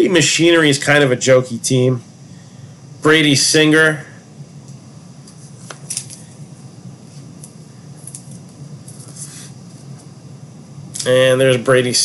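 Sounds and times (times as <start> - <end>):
steady low hum: 0.0 - 12.0
cards being handled and flipped: 5.2 - 6.3.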